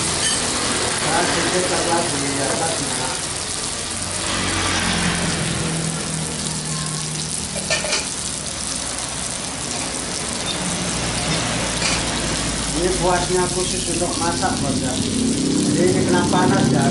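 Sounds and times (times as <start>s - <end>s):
fish sizzling in oil: 0.0s - 16.9s.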